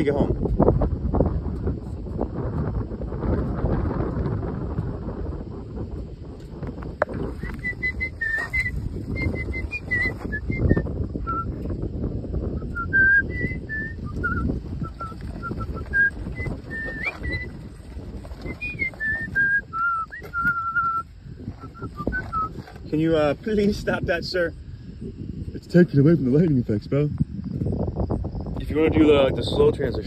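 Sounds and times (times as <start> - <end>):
wind noise rumble: 0.0 - 30.0
person whistling a tune: 7.4 - 11.6, 12.6 - 17.6, 18.4 - 22.6.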